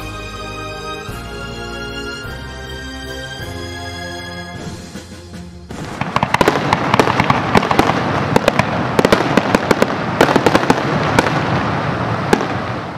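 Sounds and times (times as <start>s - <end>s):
fireworks bursting and crackling: 4.5s - 12.9s.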